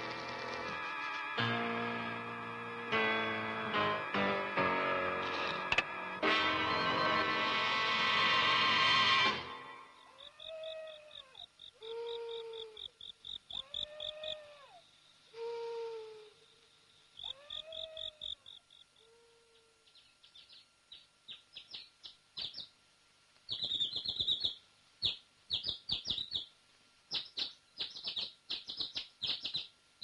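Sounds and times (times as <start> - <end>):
small birds chirping: 10.0 - 15.8, 16.4 - 22.8, 23.4 - 29.8
owl hooting softly: 10.0 - 22.7.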